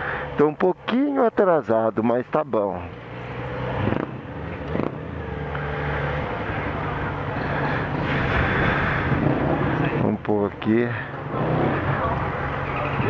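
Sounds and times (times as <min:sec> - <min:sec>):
motorcycle engine at low revs: 0:02.9 - 0:10.3.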